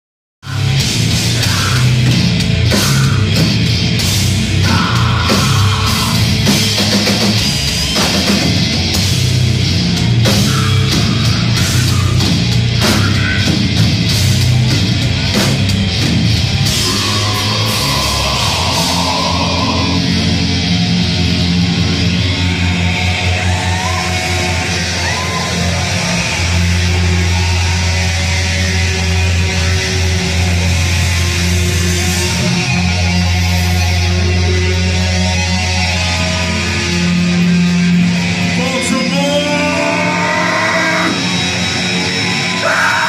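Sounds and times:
bass guitar: 0.4 - 43.0
heavy distorted guitars: 0.4 - 43.0
pounding drums: 0.6 - 27.6.

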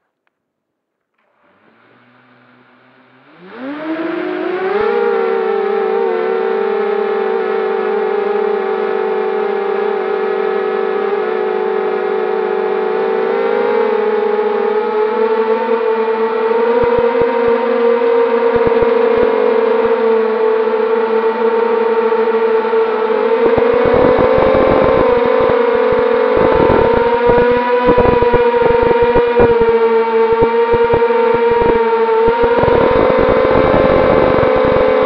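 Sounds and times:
quadcopter motors whining: 3.3 - 7.0, 15.4 - 20.4, 22.7 - 35.0.

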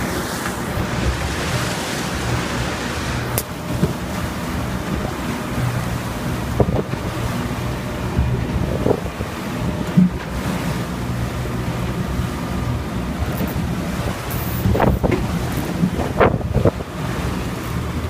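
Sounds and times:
wind rushing over microphone: 0.0 - 5.8, 13.2 - 18.0.

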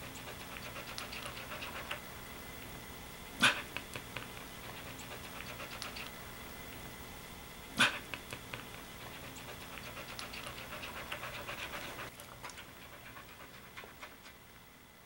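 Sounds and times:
dog panting: 0.0 - 2.1, 3.4 - 6.2, 7.8 - 14.5
dog licking with wet clicks: 0.1 - 2.0, 3.8 - 6.1, 8.1 - 14.4.

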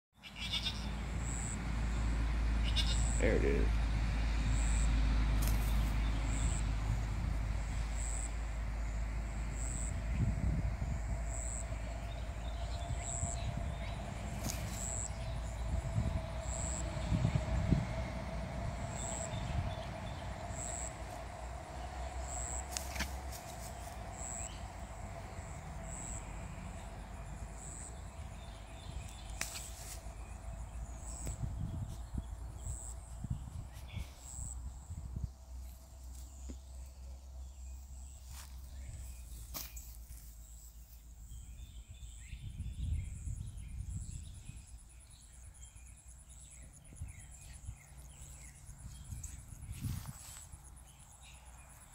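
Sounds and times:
low rumble: 3.7 - 29.4.

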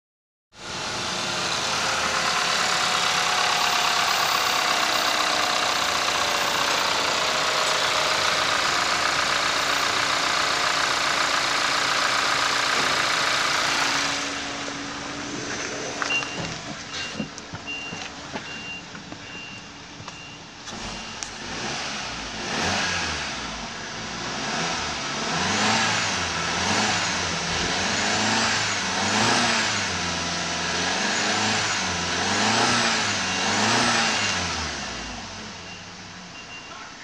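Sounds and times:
car engine idling: 0.5 - 37.0
dashboard warning chime beeps: 16.0 - 21.3, 35.5 - 37.0.

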